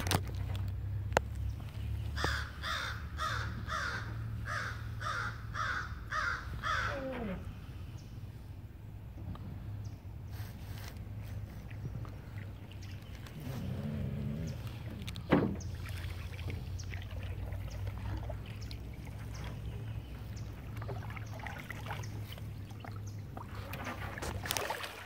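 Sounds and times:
paddle strokes and splashes: 0.0 - 2.7, 9.2 - 25.0.

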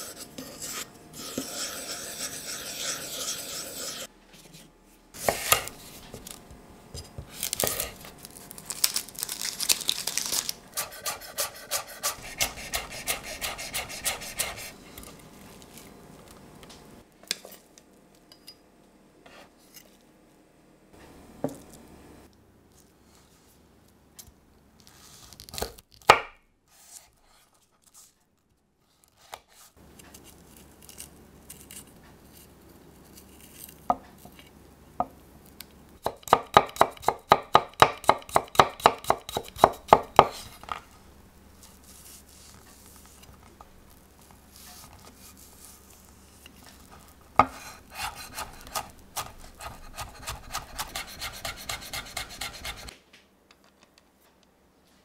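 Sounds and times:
knife chopping on wooden board: 5.2 - 5.7, 10.8 - 14.7, 36.0 - 40.5, 47.4 - 52.9.

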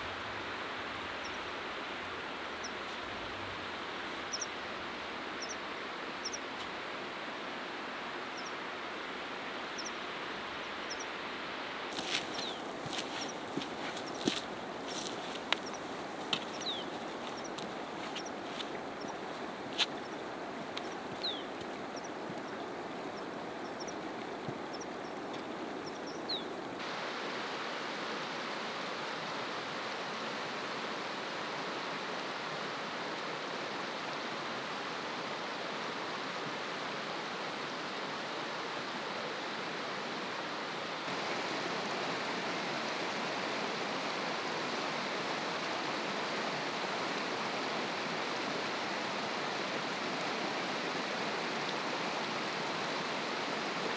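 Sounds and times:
stream water rushing: 0.0 - 53.9
bird chirping: 12.0 - 14.4, 15.6 - 18.4, 20.8 - 22.6, 25.8 - 26.5.

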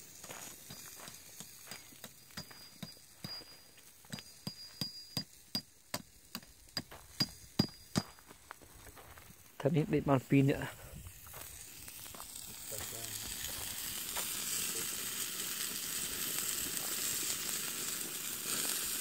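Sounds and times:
metal stake struck into stony ground: 0.7 - 8.2.

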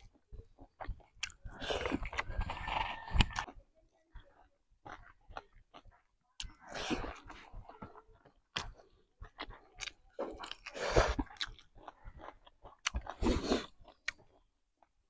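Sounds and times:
wet crunchy chewing: 0.0 - 3.6, 4.3 - 15.0.

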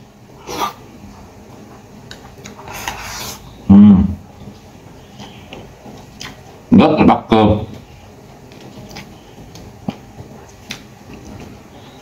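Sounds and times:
soft chewing: 0.4 - 3.4, 4.4 - 6.6, 7.7 - 12.0.

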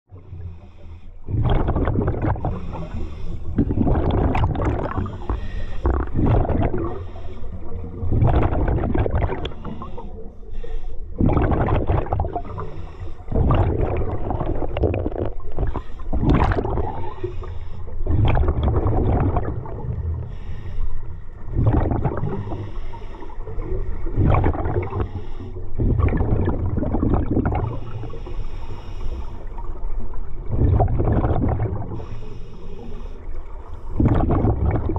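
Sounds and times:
exhaled bubbles underwater: 0.1 - 34.9
breathing through regulator: 0.2 - 1.4, 2.4 - 4.2, 4.8 - 7.9, 9.3 - 11.2, 12.4 - 13.5, 15.2 - 16.3, 16.9 - 18.1, 20.2 - 21.4, 22.2 - 23.6, 24.8 - 25.9, 27.6 - 29.7, 31.9 - 34.1.

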